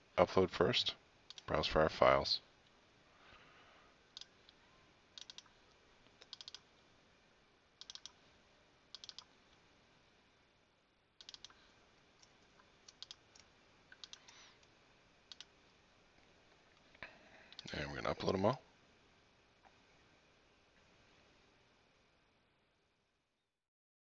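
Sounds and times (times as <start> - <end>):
mouse and keyboard clicking: 5.2 - 5.5, 6.2 - 6.6, 7.8 - 8.2, 9.0 - 9.3, 11.2 - 11.6, 12.9 - 14.7, 15.3 - 15.5.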